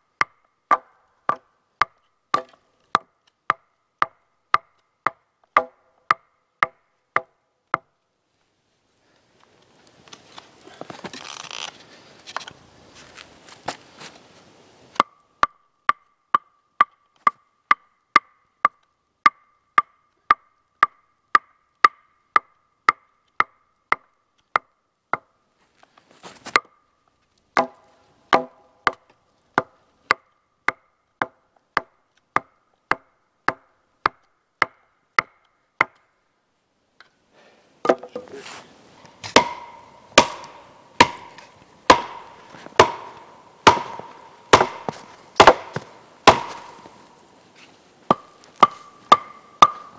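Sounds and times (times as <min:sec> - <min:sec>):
hatchet blows on wood: 0:37.9 - 0:49.9.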